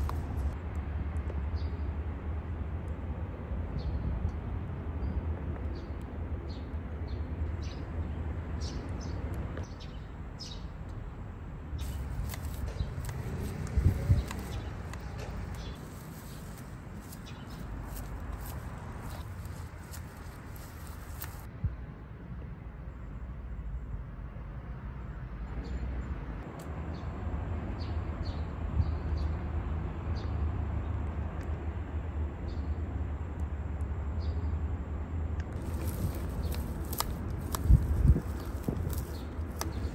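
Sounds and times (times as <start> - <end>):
low outdoor rumble: 0.0 - 27.6, 29.4 - 39.9
small birds chirping: 11.8 - 21.5, 35.5 - 39.9.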